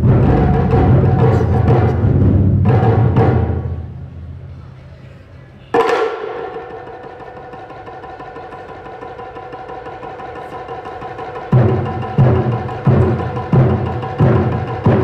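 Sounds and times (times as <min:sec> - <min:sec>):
taiko drum strikes: 0:00.0 - 0:04.4, 0:05.7 - 0:15.0
taiko drum roll: 0:00.0 - 0:04.6, 0:05.7 - 0:15.0.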